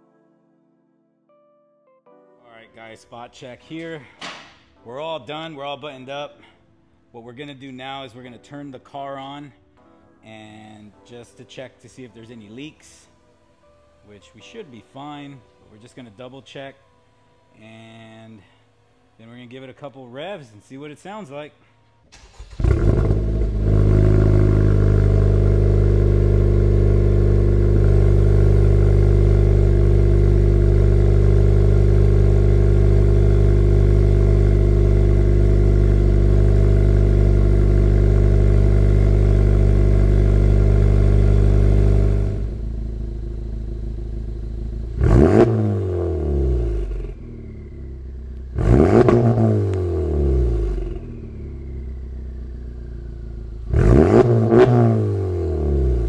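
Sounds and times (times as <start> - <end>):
car engine idling: 22.1 - 54.6
engine revving with whistle: 45.0 - 47.8, 48.6 - 52.2, 53.7 - 55.3.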